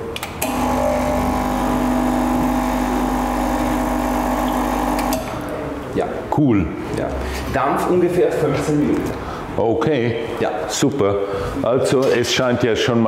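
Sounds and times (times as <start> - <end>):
espresso machine pump buzzing: 0.4 - 5.4.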